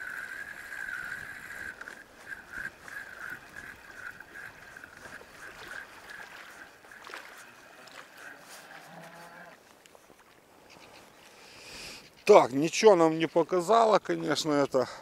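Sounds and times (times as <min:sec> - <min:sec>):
small waves lapping at shore: 0:00.0 - 0:11.8
faint wind: 0:00.0 - 0:15.0.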